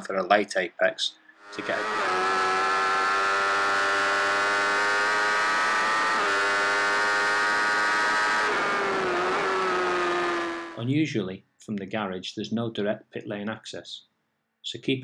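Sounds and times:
motorcycle engine at high revs: 1.5s - 10.8s.

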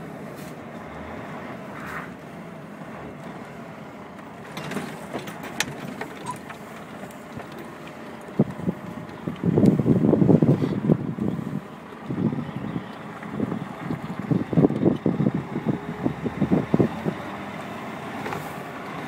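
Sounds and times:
truck engine running: 0.0s - 19.0s.

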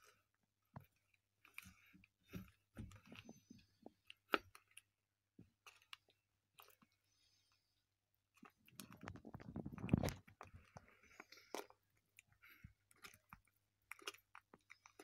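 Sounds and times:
turtles biting and crunching worms: 0.0s - 7.2s, 8.3s - 15.0s
small clicks and crunches: 8.4s - 11.8s.

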